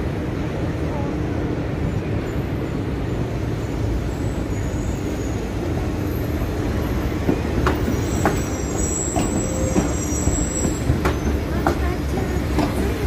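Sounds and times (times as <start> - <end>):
city traffic rumble: 0.0 - 13.0
streetcar rolling: 0.0 - 13.0
high wheel squeal: 3.6 - 7.1, 7.7 - 11.5.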